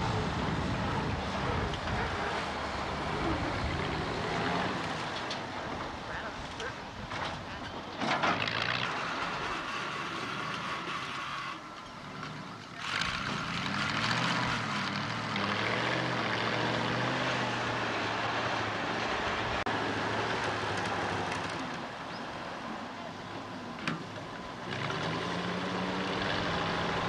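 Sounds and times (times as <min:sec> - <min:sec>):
wheel loader engine running: 0:00.0 - 0:27.0.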